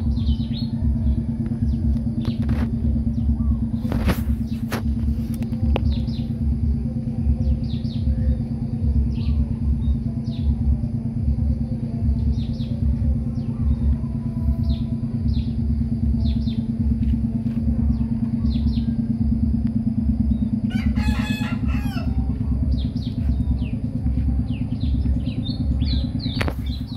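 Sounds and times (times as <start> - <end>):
low motor hum: 0.0 - 26.9
rooster crowing: 20.6 - 22.3.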